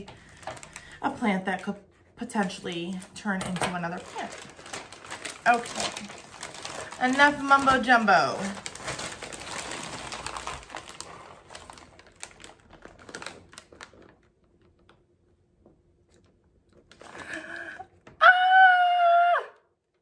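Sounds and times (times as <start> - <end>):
packing paper crinkling: 0.0 - 15.1, 16.1 - 17.8
person crying out excitedly: 17.6 - 19.6.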